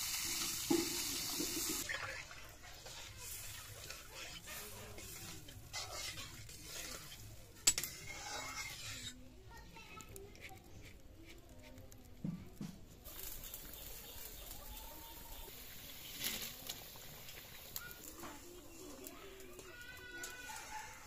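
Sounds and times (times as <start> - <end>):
curry simmering hiss: 0.0 - 21.0
wood fire crackles and pops: 9.8 - 20.6.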